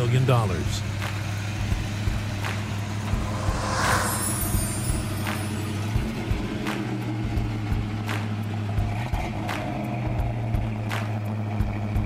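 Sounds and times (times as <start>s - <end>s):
brief rushing hiss: 2.6s - 5.9s.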